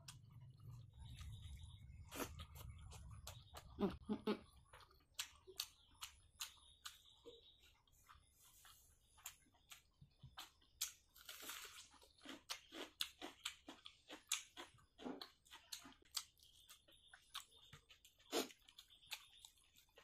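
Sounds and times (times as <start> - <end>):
chewing: 0.0 - 20.0.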